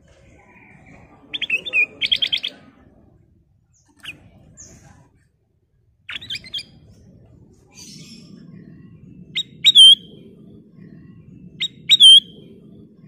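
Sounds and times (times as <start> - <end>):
bulbul singing: 1.3 - 2.7, 6.1 - 6.9, 7.7 - 13.0.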